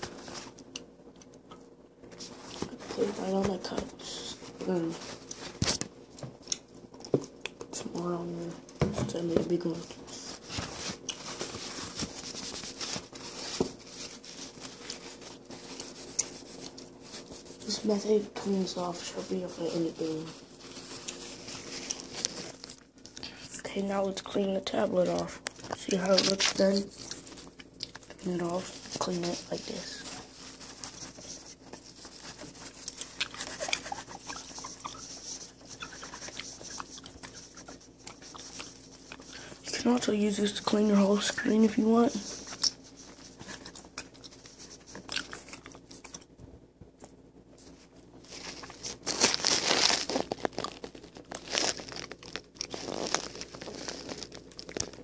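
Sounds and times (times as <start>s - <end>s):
paper napkin rustling and crinkling: 0.0s - 0.6s, 2.2s - 5.8s, 8.0s - 46.2s, 47.6s - 55.0s
tissue scrubbing on glass screen: 9.1s - 22.8s, 28.2s - 45.5s, 47.6s - 55.0s.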